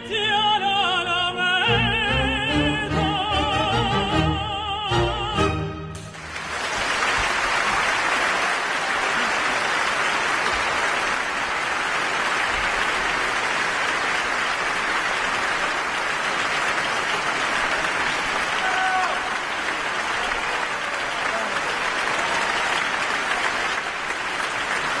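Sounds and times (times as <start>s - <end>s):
tenor singing: 0.0s - 6.0s
orchestra chord: 1.7s - 6.4s
audience applause: 6.0s - 25.0s.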